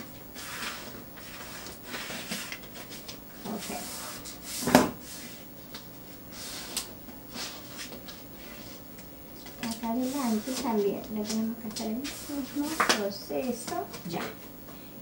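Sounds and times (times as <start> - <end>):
stiff paper rustling: 9.6 - 13.1.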